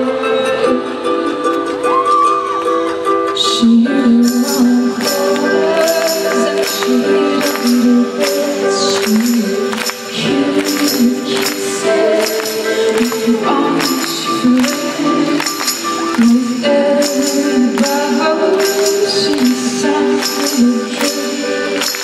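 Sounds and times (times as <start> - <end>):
live band sustained chords: 0.0 - 22.0
steady percussion beat: 4.4 - 19.6.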